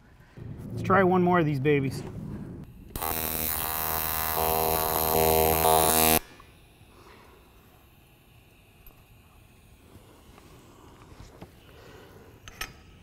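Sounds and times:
welding arc buzzing: 2.6s - 11.8s.

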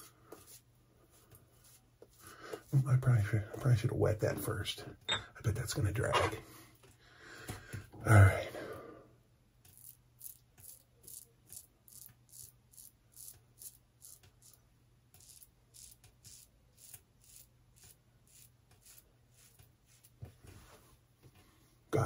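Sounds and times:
razor scraping stubble: 9.7s - 20.2s.

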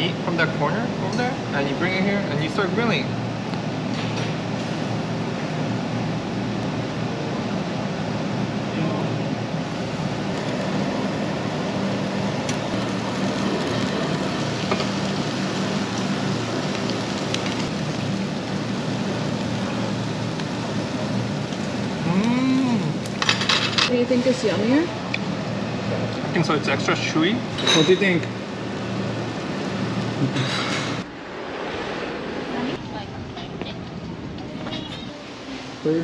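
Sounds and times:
meat sizzling on a grill: 9.6s - 30.7s.

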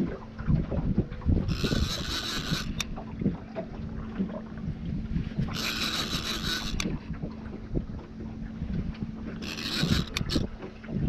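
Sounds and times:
faint steady hum: 0.0s - 11.0s
wind rumbling on microphone: 0.0s - 11.0s
fishing reel whirring: 1.4s - 3.1s, 5.3s - 7.2s, 9.2s - 10.6s
reel click: 1.4s - 4.3s, 5.4s - 7.5s, 8.9s - 10.9s.

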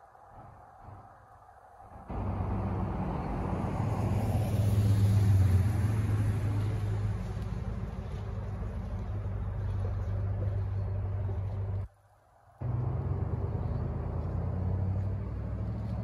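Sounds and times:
pickup truck driving past: 2.1s - 11.9s, 12.6s - 16.0s.

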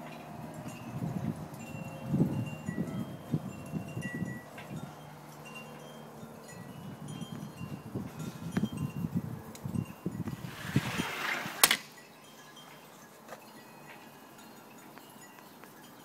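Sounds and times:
wind buffeting microphone: 0.0s - 5.5s, 6.1s - 11.8s
wind chimes ringing: 0.0s - 16.0s.

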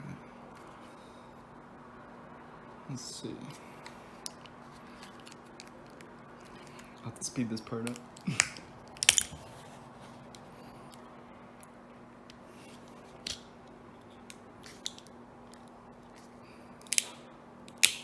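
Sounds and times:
faint steady hum: 0.0s - 18.0s
plastic casing clicks and snaps: 16.8s - 18.0s.

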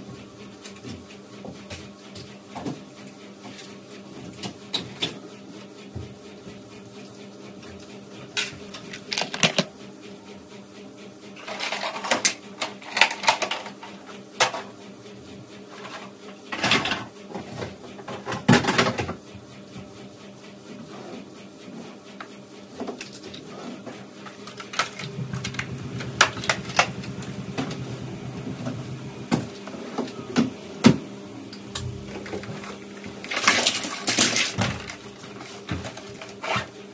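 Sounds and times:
plastic toys clattering: 8.4s - 9.7s, 33.2s - 36.4s.

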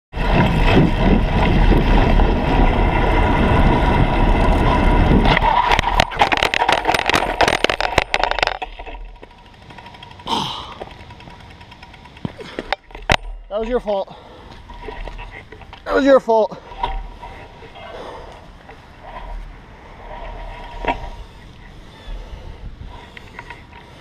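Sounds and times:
bike tyre noise on pavement: 0.1s - 24.0s
wind rush: 0.2s - 6.7s, 20.0s - 23.2s
bike crash clattering: 0.2s - 21.2s.

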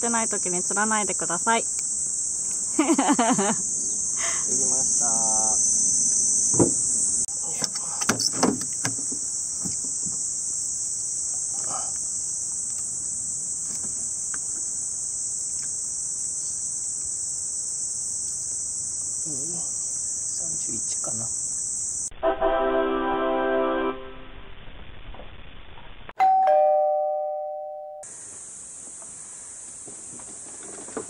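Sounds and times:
insects chirring: 0.0s - 22.1s, 28.0s - 31.0s
sharp knocks and clatter: 6.5s - 6.8s, 7.6s - 10.2s.

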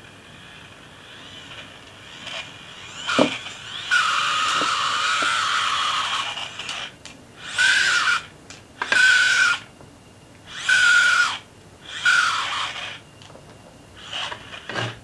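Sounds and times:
electric motor whine: 0.0s - 9.7s, 10.4s - 15.0s.

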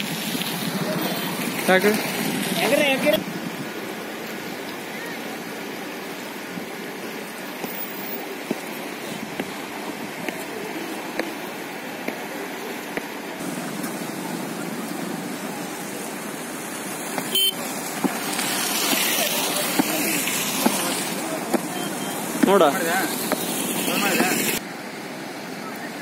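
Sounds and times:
river rushing: 0.0s - 26.0s.

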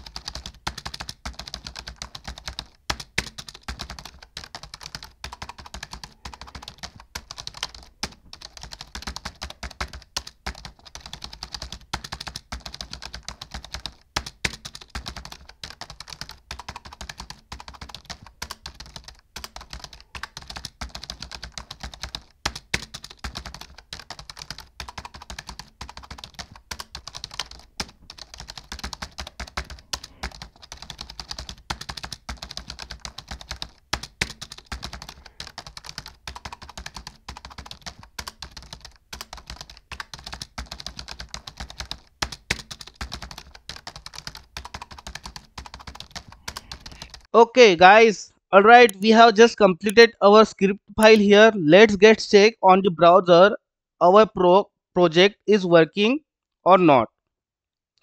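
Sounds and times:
typing on computer keyboard: 0.0s - 47.3s.

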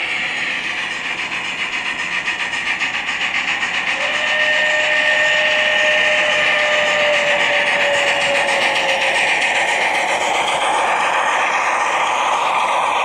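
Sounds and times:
steam exhaust chuffs: 0.0s - 13.0s
train whistle tone: 3.9s - 9.5s.

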